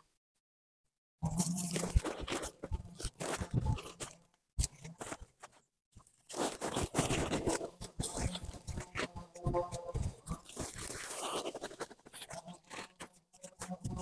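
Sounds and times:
sack crinkling and rustling: 1.4 - 9.1, 10.3 - 13.1.

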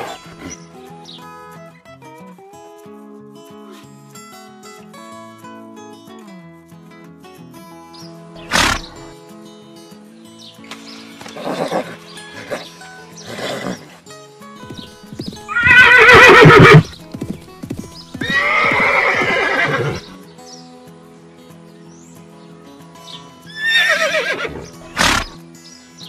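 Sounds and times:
soft background music: 0.0 - 26.0
horses neighing: 8.4 - 9.1, 11.2 - 14.0, 14.7 - 17.3, 18.1 - 20.1, 23.5 - 25.4.

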